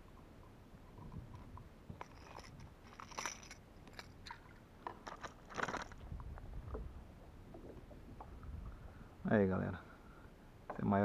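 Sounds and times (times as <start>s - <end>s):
fishing gear handled in plastic kayak: 0.8s - 6.9s.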